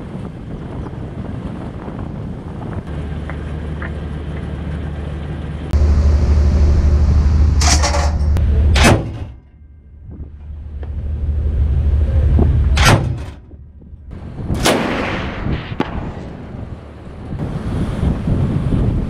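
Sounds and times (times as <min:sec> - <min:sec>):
wind on microphone: 0:00.0 - 0:02.9, 0:10.0 - 0:12.8, 0:13.4 - 0:19.0
ship engine rumble: 0:00.0 - 0:19.0.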